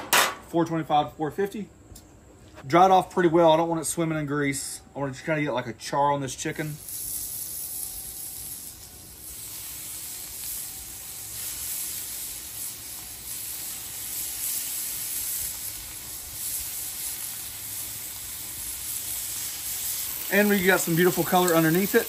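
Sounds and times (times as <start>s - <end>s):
chicken sizzling on a griddle: 6.5s - 22.0s.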